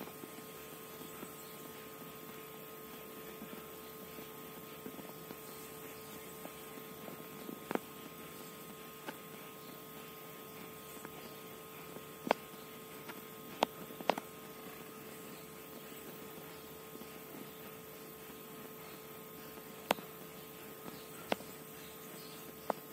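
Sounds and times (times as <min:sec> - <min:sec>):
gas flame hum: 0:00.0 - 0:22.9.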